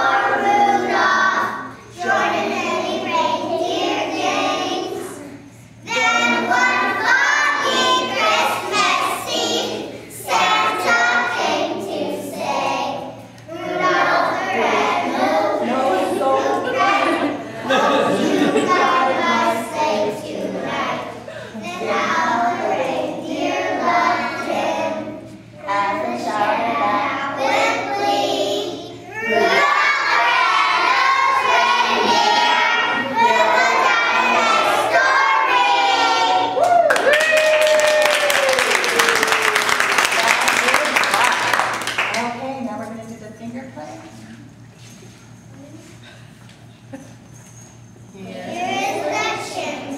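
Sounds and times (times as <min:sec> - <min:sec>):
children singing together: 0:00.0 - 0:36.6, 0:48.2 - 0:49.9.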